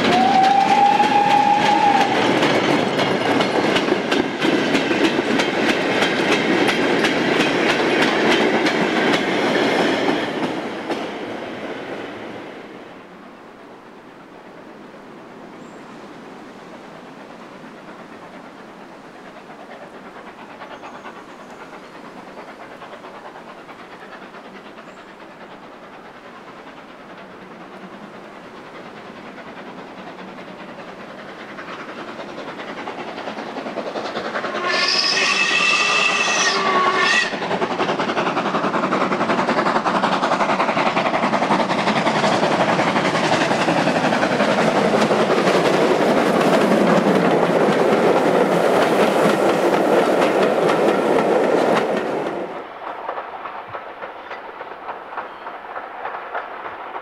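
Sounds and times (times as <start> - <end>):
steam whistle: 0.0 - 2.4, 34.5 - 37.4
steam locomotive with train: 0.0 - 57.0.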